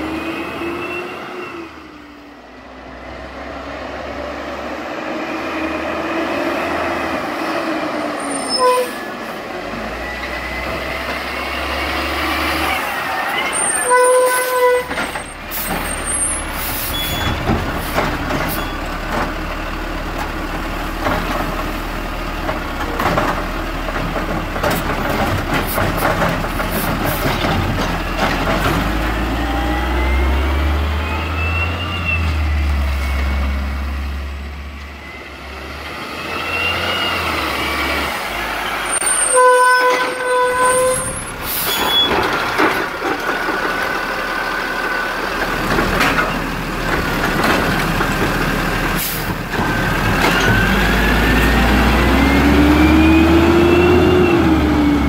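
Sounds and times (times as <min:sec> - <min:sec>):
squeal: 0:00.6 - 0:01.7, 0:15.9 - 0:17.4, 0:18.5 - 0:18.9, 0:31.0 - 0:32.4, 0:36.3 - 0:38.0, 0:38.6 - 0:42.2
garbage truck engine revving: 0:09.1 - 0:39.4, 0:40.0 - 0:55.0.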